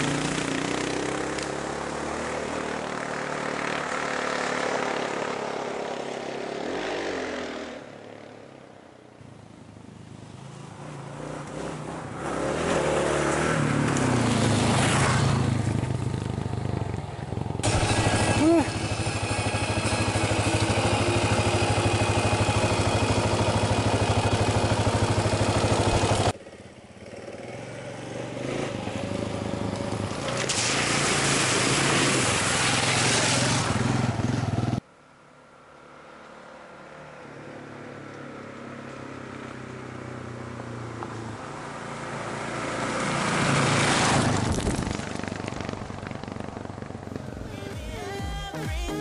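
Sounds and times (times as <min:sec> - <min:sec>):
motorcycle engine: 0:00.0 - 0:34.9, 0:35.5 - 0:48.9
motorcycle passing by: 0:00.0 - 0:34.9, 0:35.5 - 0:48.2
water splashing: 0:30.1 - 0:34.1.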